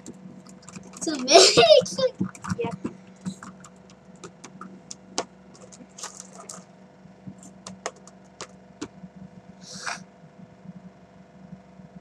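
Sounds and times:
objects clicking on wooden table: 0:07.3 - 0:08.9.

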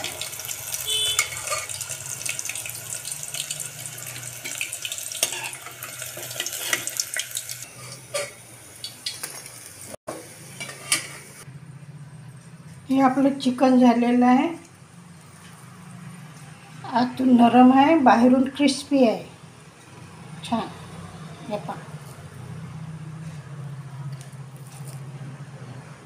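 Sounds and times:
hot oil sizzling and crackling: 0:00.0 - 0:11.5
spoon clinking and scraping pot: 0:01.0 - 0:01.9, 0:05.2 - 0:07.0, 0:10.6 - 0:11.3.

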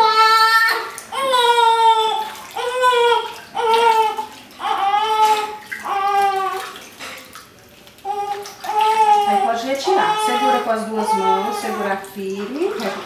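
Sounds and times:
baby crying: 0:00.0 - 0:06.7, 0:08.1 - 0:12.1
water splashing in tub: 0:00.0 - 0:13.0.

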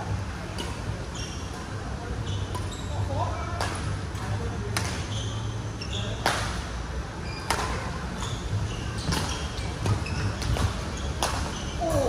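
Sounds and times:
shoes squeaking on court: 0:00.6 - 0:03.3, 0:04.2 - 0:06.5, 0:07.2 - 0:12.0
racket hitting shuttlecock: 0:03.6 - 0:05.0, 0:07.5 - 0:07.8, 0:09.0 - 0:11.7.

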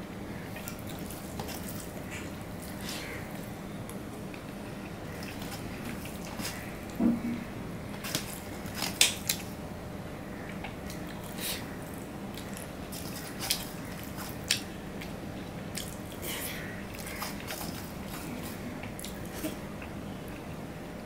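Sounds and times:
chewing: 0:00.5 - 0:07.0, 0:10.5 - 0:16.3, 0:16.9 - 0:20.6.

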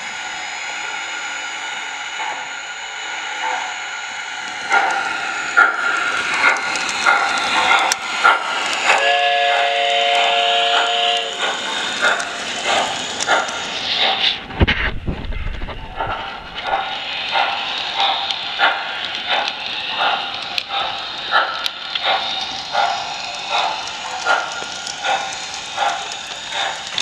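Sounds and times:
steady steam hiss: 0:00.0 - 0:14.5, 0:15.6 - 0:27.0
rhythmic steam chuffing: 0:00.0 - 0:27.0
chord steam whistle: 0:08.9 - 0:11.6.

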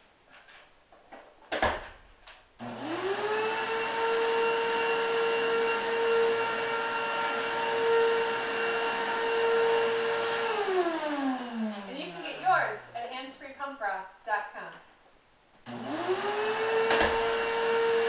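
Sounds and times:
vacuum cleaner running: 0:02.6 - 0:13.1, 0:15.7 - 0:18.0.

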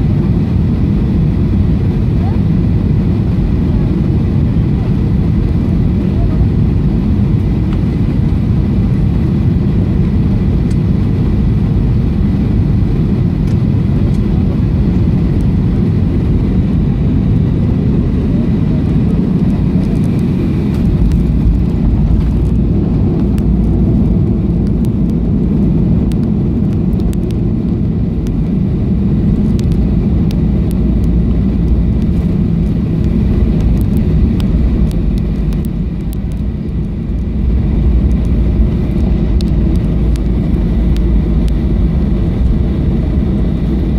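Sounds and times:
jet engines roaring: 0:00.0 - 0:43.9
wheels rumbling on runway: 0:00.0 - 0:43.9
rushing air: 0:11.5 - 0:43.9.

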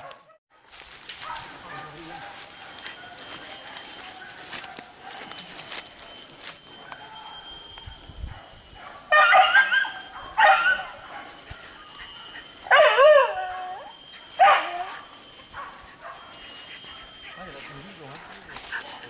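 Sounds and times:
dogs baying: 0:00.0 - 0:19.0.

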